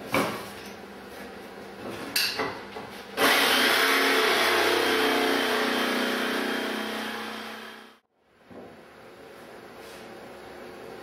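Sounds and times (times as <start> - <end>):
electric jigsaw cutting wood: 3.2 - 8.0.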